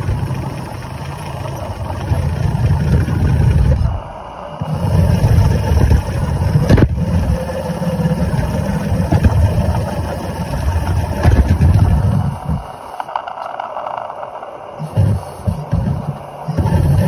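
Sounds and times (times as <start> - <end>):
steam wagon low rumble: 0.0 - 17.0.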